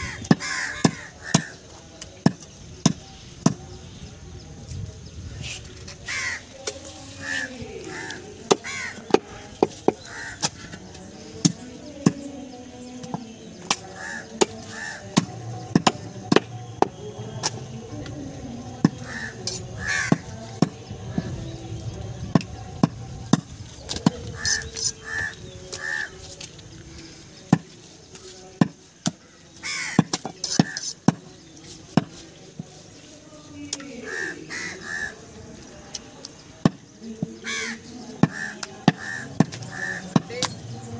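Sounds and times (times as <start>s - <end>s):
crows cawing: 0.0s - 1.7s, 6.0s - 6.5s, 7.2s - 9.1s, 9.9s - 10.7s, 13.8s - 15.2s, 19.0s - 20.3s, 24.4s - 26.2s, 29.6s - 30.9s, 34.0s - 35.2s, 37.4s - 40.2s.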